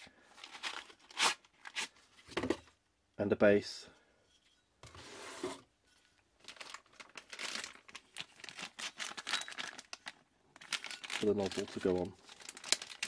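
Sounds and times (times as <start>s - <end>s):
plastic bag crinkling: 6.4s - 13.0s.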